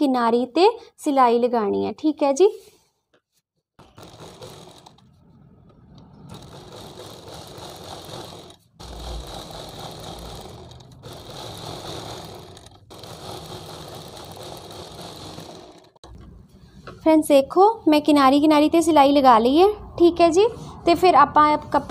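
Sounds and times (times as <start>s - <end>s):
sewing machine running: 3.8s - 16.0s.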